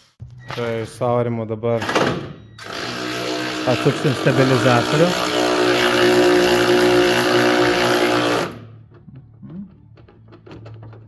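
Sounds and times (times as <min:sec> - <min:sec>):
power tool motor running: 0:02.6 - 0:08.6.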